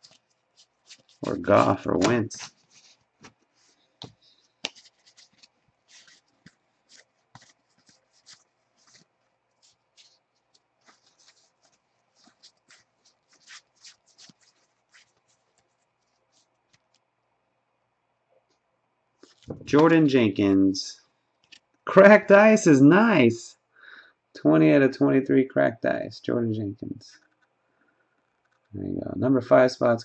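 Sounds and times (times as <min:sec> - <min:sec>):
trading cards sliding and flicking: 0:00.0 - 0:17.0.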